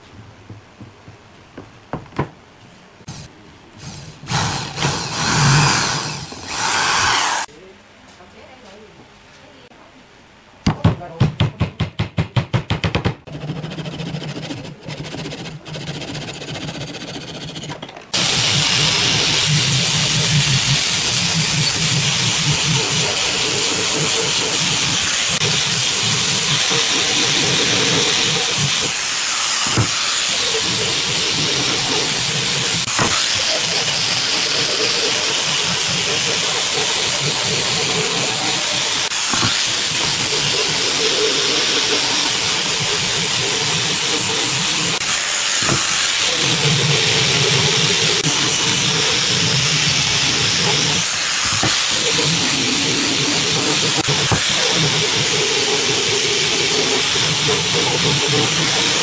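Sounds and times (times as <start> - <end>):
quick knocks: 0.4 - 2.4
angle grinder sanding wood: 3.1 - 7.5, 13.3 - 59.0.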